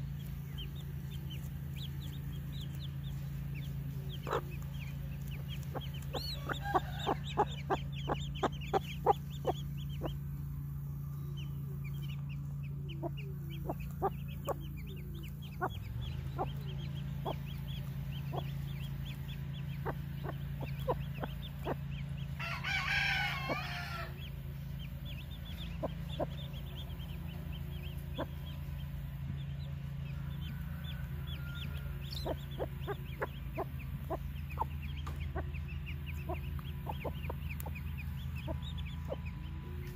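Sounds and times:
chicks peeping: 0:00.0 - 0:39.9
hen clucking: 0:00.0 - 0:39.9
low hum: 0:00.0 - 0:39.9
rooster crowing: 0:06.2 - 0:07.8, 0:22.4 - 0:24.2, 0:30.1 - 0:32.4.

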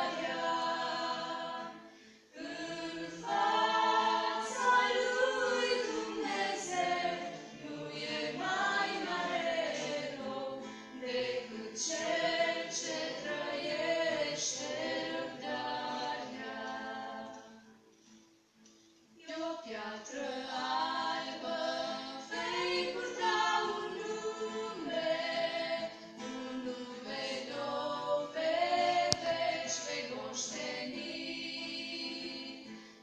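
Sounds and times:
women singing a church song: 0:00.0 - 0:17.8, 0:19.2 - 0:33.0.

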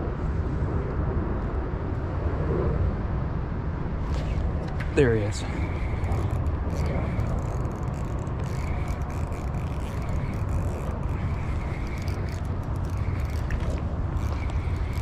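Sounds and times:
wind on microphone: 0:00.0 - 0:15.0
clothing brushing microphone: 0:04.0 - 0:15.0.

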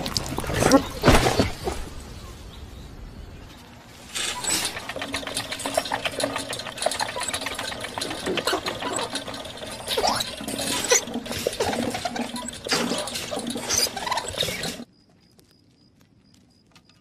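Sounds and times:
hamster wheel rattling: 0:04.1 - 0:14.9.

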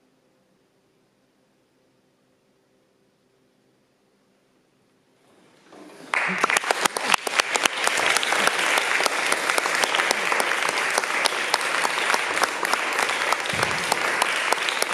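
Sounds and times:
audience applause: 0:06.0 - 0:14.9.

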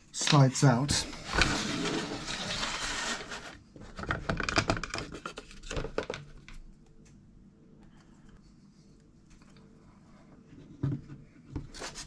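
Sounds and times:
circuit board scraping out of case: 0:01.2 - 0:03.6.

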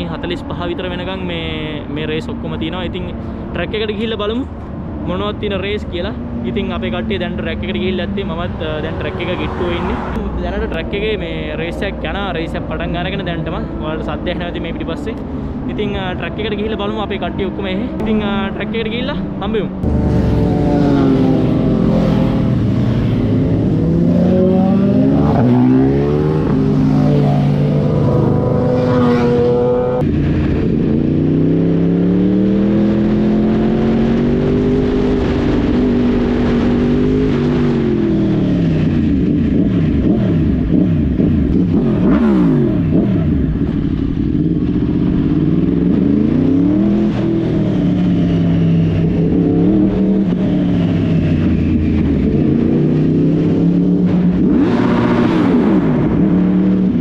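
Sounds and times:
other engines passing: 0:00.0 - 0:57.0
wind noise: 0:17.8 - 0:57.0
motorcycle engine revving through gears: 0:19.8 - 0:57.0.

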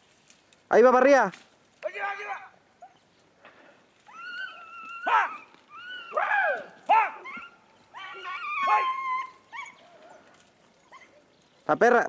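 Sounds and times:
dogs baying: 0:04.1 - 0:11.3.

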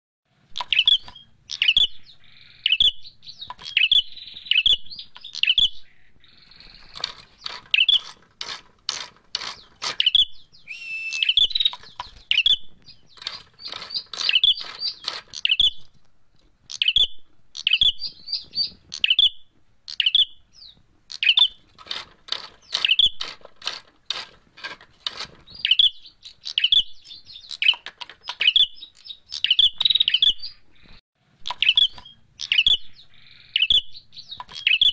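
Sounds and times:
bird chirping sharp high: 0:00.6 - 0:08.2, 0:09.4 - 0:15.9, 0:16.7 - 0:21.7, 0:22.4 - 0:23.3, 0:25.5 - 0:34.9
bird dry clicks: 0:03.4 - 0:04.0, 0:06.6 - 0:10.2, 0:11.1 - 0:12.5, 0:13.1 - 0:16.1, 0:21.1 - 0:26.6, 0:27.4 - 0:30.1, 0:34.3 - 0:34.9.

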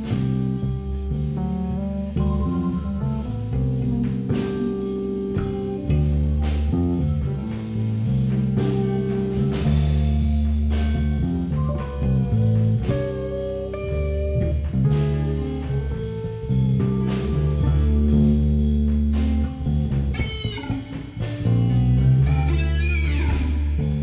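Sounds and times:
bass guitar: 0:00.0 - 0:24.0
electric guitar: 0:00.0 - 0:24.0
drum hits: 0:16.9 - 0:24.0.

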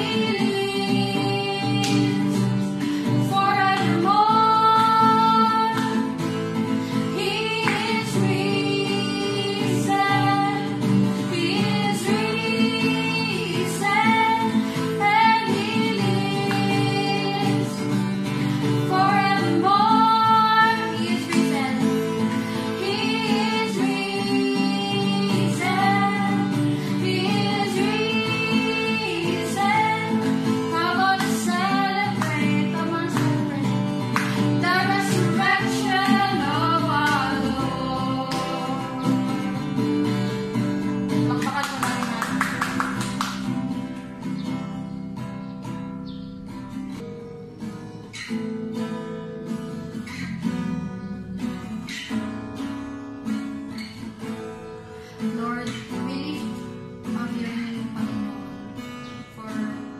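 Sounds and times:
women singing worship song: 0:00.0 - 0:39.8
acoustic guitar: 0:00.0 - 0:59.9.

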